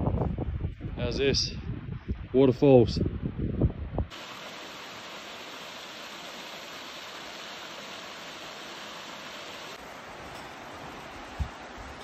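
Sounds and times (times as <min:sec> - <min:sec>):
waterfall rushing into pool: 0:04.1 - 0:12.0.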